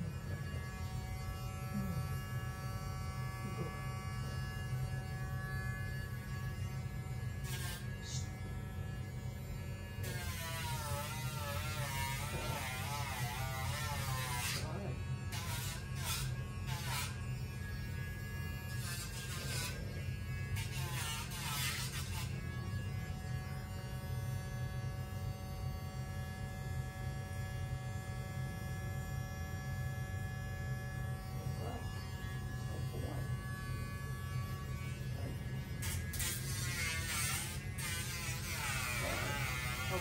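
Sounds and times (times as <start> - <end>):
rotary tool buzzing: 0.0 - 40.0.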